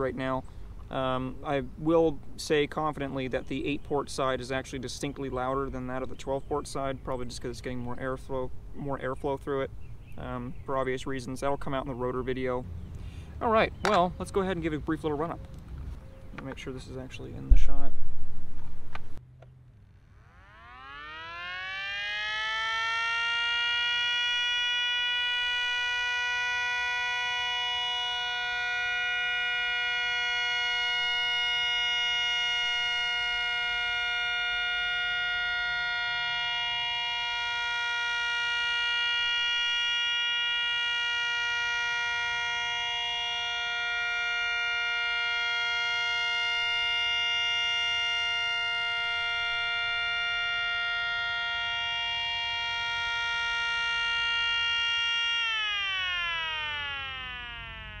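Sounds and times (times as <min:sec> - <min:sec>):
two-tone siren wailing: 0:20.1 - 0:58.0.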